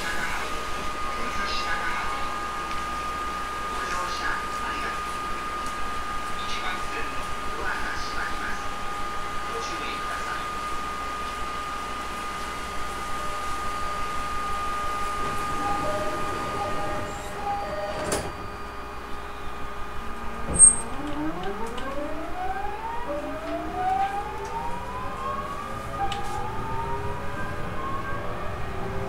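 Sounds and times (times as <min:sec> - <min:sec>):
electric train rising tones: 0:13.0 - 0:29.0.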